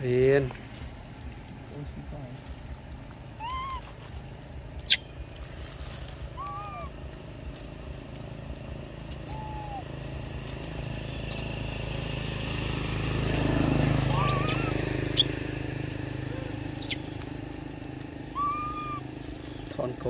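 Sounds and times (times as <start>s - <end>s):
low engine drone: 0.0s - 20.0s
macaques coo calls: 3.2s - 5.4s, 6.2s - 7.3s, 9.0s - 10.5s, 13.8s - 19.8s.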